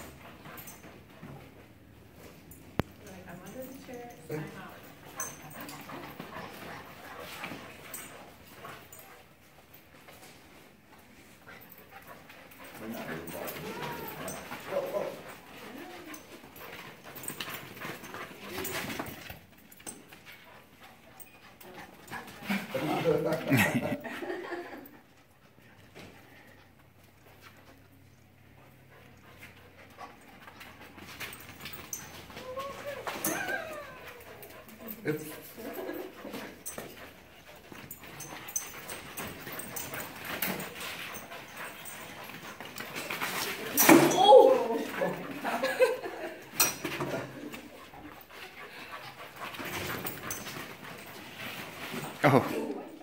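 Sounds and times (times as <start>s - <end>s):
paws pattering on floor: 0.0s - 43.8s, 44.5s - 53.0s
puppies whining and yipping: 12.9s - 14.8s, 31.3s - 34.9s, 36.6s - 45.8s.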